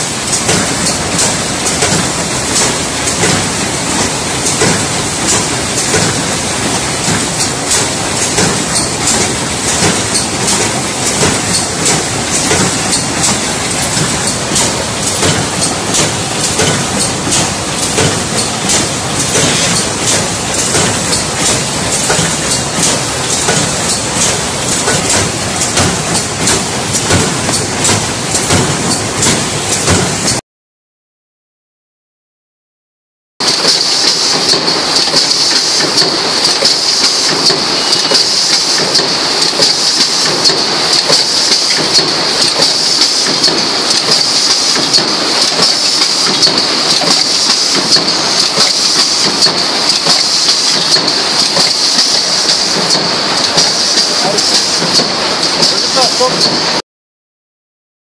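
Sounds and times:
conveyor mechanical clatter: 0:00.0 - 0:30.4, 0:33.4 - 0:56.8.

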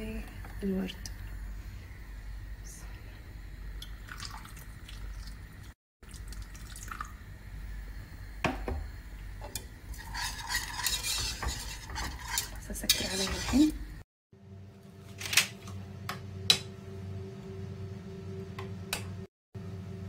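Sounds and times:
utensil scraping pudding in pot: 0:09.4 - 0:13.8.

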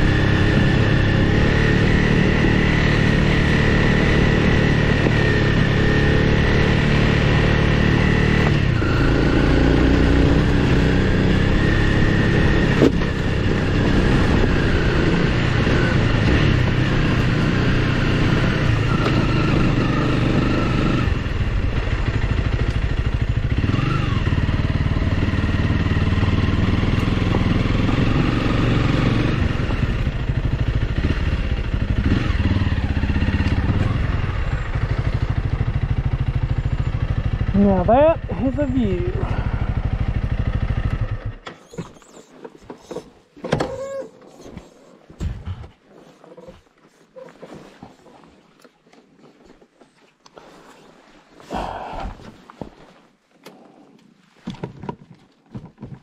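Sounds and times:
motorcycle engine running: 0:00.0 - 0:41.4.

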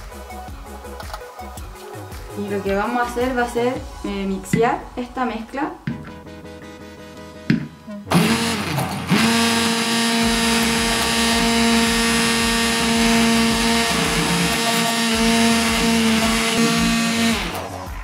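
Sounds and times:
immersion blender humming: 0:08.1 - 0:17.8.

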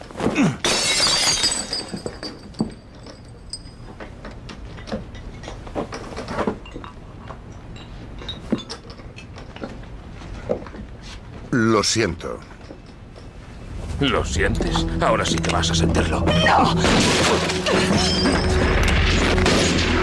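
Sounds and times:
glass shattering: 0:00.6 - 0:02.8, 0:16.8 - 0:19.8
small clinks and knocks: 0:01.7 - 0:09.8, 0:12.4 - 0:13.4.

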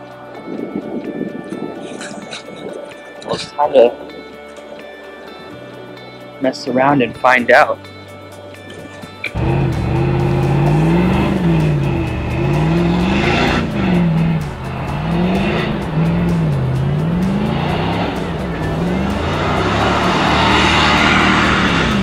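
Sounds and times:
suv engine revving: 0:09.3 - 0:22.0
tyres churning sand: 0:09.4 - 0:22.0.

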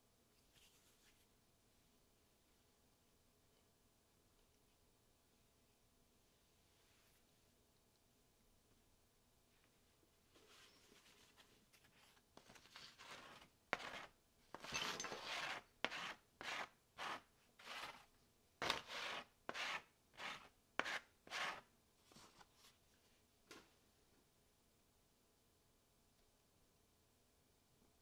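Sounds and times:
paper rustling against a board: 0:10.4 - 0:18.0.

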